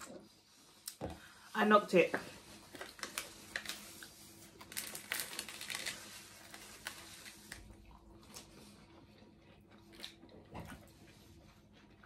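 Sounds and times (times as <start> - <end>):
paper wrapper crinkling: 2.4 - 7.8.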